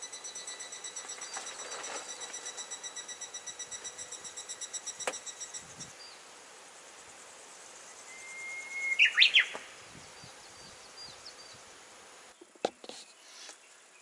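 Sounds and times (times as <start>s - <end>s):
high pulsing trill: 0.0s - 6.2s
songbird singing: 0.0s - 14.0s.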